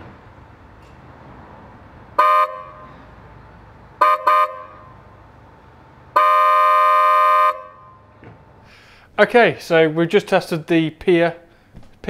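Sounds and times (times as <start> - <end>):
dual-tone car horn beeping: 2.2 - 3.0, 3.9 - 5.0, 6.1 - 8.2.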